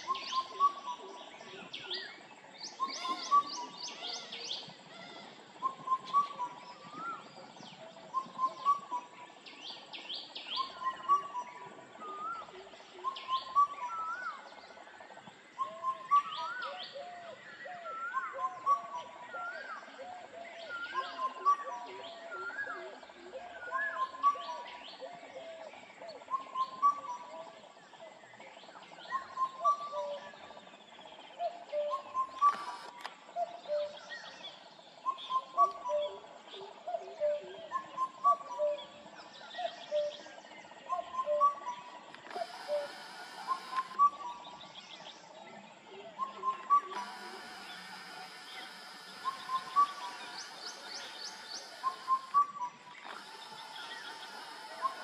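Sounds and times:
cuckoo calling: 0.0s - 2.1s, 2.7s - 9.2s, 10.5s - 14.6s, 15.5s - 27.7s, 29.1s - 30.6s, 31.4s - 34.4s, 35.0s - 55.0s
birds whistling: 0.0s - 14.6s, 15.5s - 27.4s, 29.0s - 55.0s
high bird chirps: 46.2s - 55.0s.

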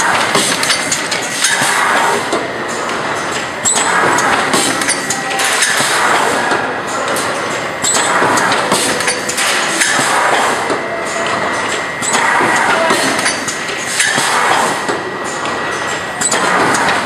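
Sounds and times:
machine metal knocks and clicks: 7.1s - 17.0s
machine rushing noise: 11.4s - 14.9s.

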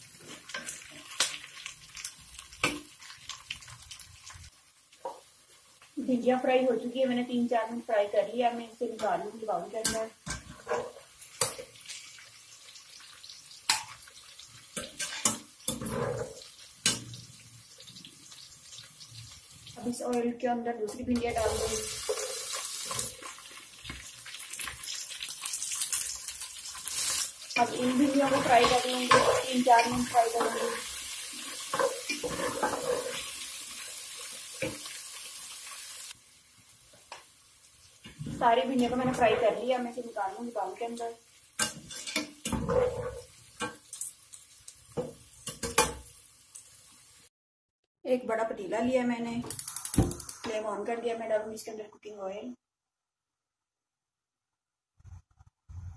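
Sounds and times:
frying oil sizzling: 0.0s - 20.3s, 21.0s - 47.3s, 49.5s - 50.8s
wooden spatula scraping pot: 10.3s - 11.1s, 27.6s - 31.0s, 31.7s - 33.3s.

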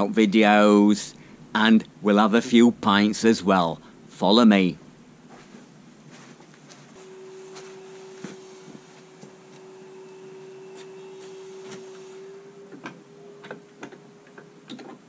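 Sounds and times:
faint steady hum: 0.0s - 15.0s
footsteps on paving: 5.3s - 9.7s.

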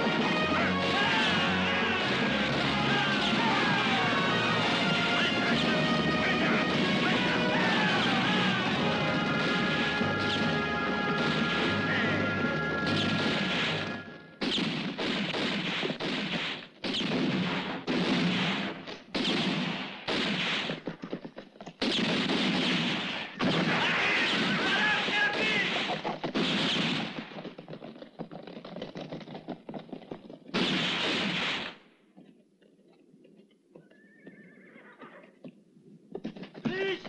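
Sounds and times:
rifle and pistol gunshots: 0.0s - 20.9s, 21.8s - 27.4s, 30.6s - 31.8s.

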